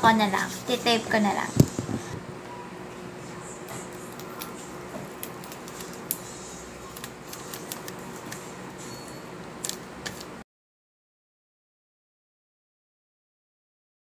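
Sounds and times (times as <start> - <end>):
tape being handled: 6.9 - 8.4.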